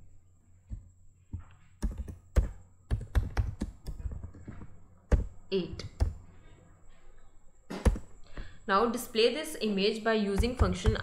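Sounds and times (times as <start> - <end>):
keyboard keys clicking: 1.8 - 6.2.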